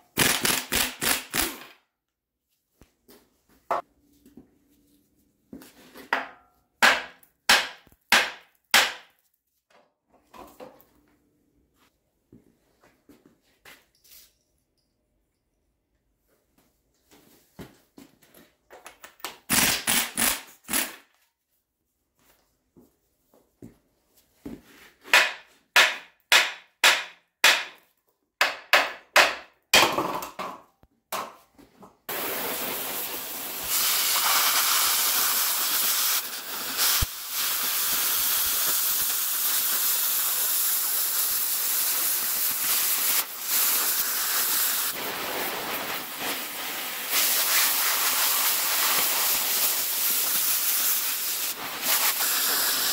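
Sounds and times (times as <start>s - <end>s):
pneumatic impact wrench bursts: 0.1s - 1.8s, 19.5s - 21.1s, 32.1s - 45.0s, 47.1s - 52.9s
cutting torch hissing: 32.1s - 52.9s.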